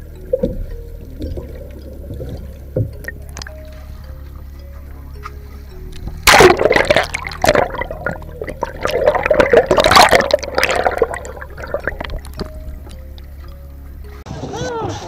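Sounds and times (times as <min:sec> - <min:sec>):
water splashing and bubbling: 0:00.0 - 0:05.2, 0:06.0 - 0:13.5.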